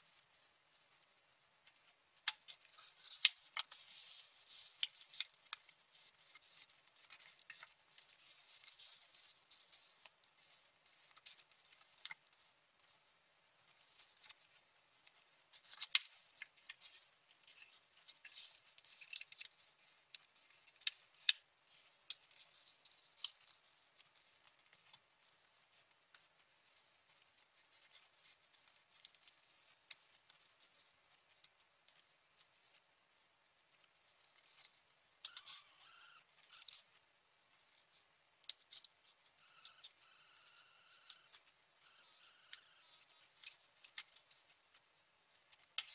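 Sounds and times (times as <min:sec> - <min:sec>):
paper crinkling while folded: 0:00.0 - 0:45.9.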